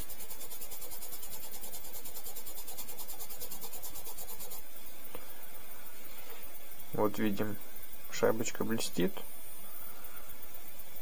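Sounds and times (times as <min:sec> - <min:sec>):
washer scrubbing on polishing wheel: 0:00.0 - 0:04.6.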